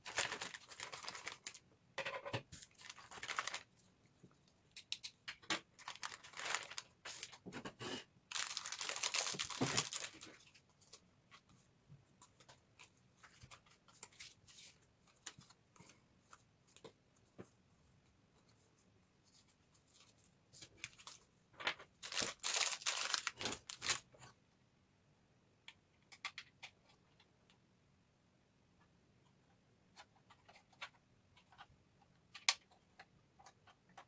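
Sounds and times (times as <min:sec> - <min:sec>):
plastic bag crinkling: 0:00.0 - 0:01.6, 0:02.6 - 0:03.7, 0:05.8 - 0:07.4, 0:08.3 - 0:10.4, 0:22.0 - 0:24.1.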